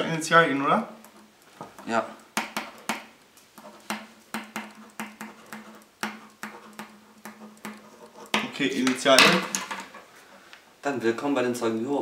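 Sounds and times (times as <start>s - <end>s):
pen writing on paper: 3.6s - 8.6s.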